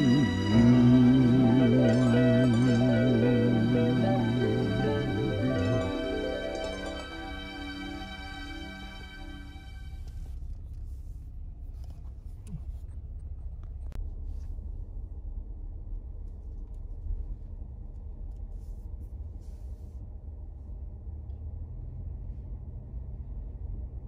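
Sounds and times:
car rumble from inside cabin: 0.0s - 3.2s, 9.7s - 24.0s.

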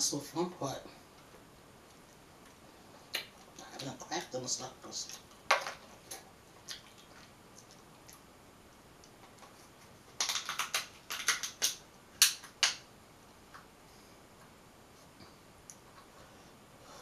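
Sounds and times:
crab shell cracking: 10.2s - 12.8s.

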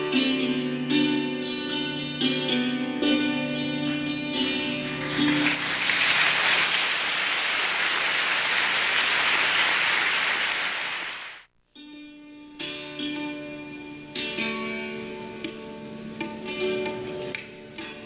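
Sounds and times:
audience applause: 5.0s - 11.5s.

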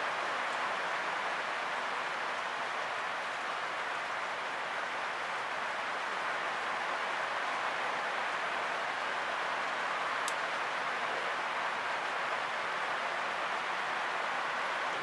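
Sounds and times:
steady rain: 0.0s - 15.0s.

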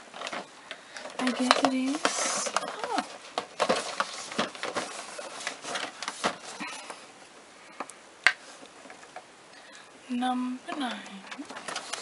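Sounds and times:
cardboard rustling and scraping: 0.0s - 6.9s, 11.3s - 12.0s.

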